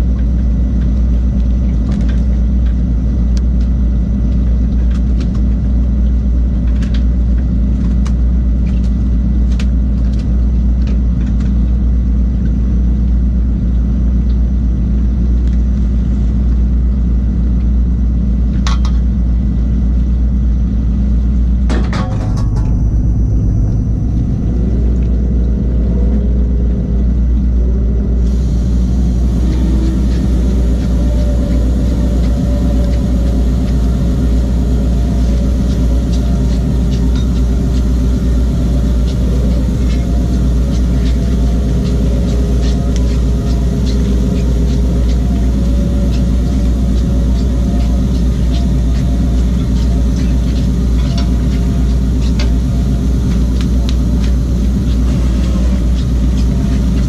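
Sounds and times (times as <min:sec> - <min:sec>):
boat motor rumbling: 0:00.0 - 0:57.0.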